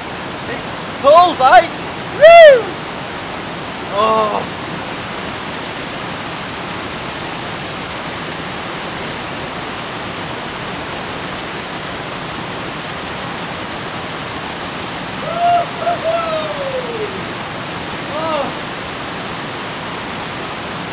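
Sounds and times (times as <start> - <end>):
waterfall pouring into pool: 0.0 - 20.9.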